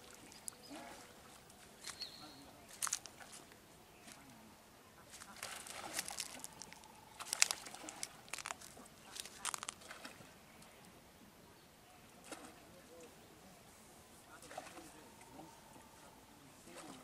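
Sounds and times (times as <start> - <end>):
water splashes and knocks: 0.0 - 1.6.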